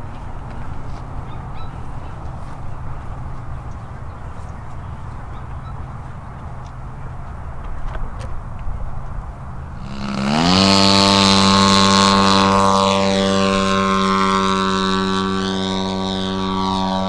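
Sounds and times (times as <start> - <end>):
model plane engine running: 9.0 - 17.0.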